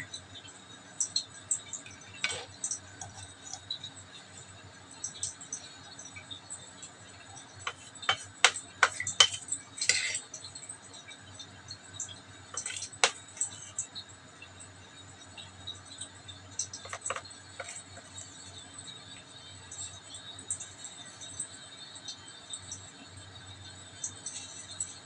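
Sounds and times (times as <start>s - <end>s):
metal fork clinking against bowl: 7.7s - 10.3s, 12.6s - 13.6s.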